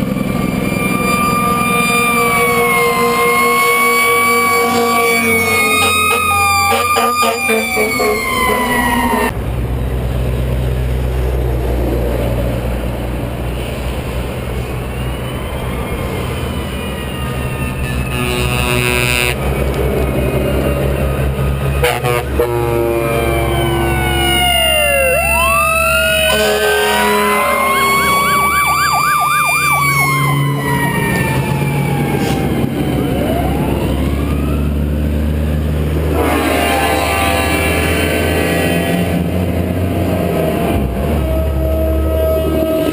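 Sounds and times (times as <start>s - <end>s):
fire engine siren wailing: 0.0s - 9.4s, 12.6s - 42.9s
truck diesel engine passing: 0.0s - 42.9s
horn blasts: 0.6s - 9.3s, 17.8s - 19.6s, 21.8s - 24.3s, 25.0s - 30.8s, 36.0s - 39.3s, 40.7s - 42.9s.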